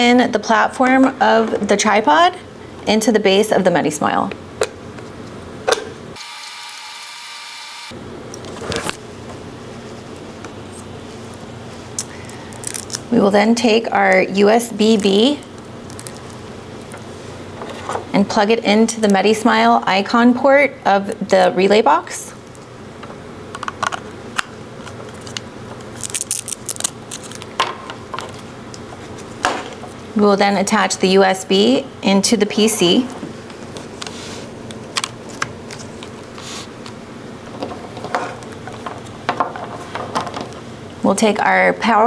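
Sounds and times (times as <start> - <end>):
steady hum and hiss: 0.0 - 42.0
cable rustling: 9.7 - 13.2, 14.0 - 18.1, 24.8 - 30.0.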